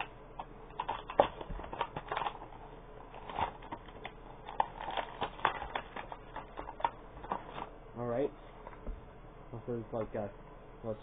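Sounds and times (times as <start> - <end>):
packaging crinkling and snapping: 0.0 - 7.7.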